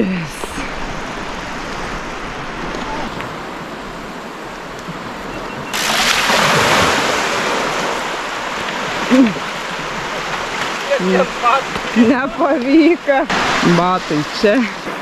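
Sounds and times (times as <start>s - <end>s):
rush of water and wind: 0.0s - 15.0s
bicycle splashing through water: 5.6s - 15.0s.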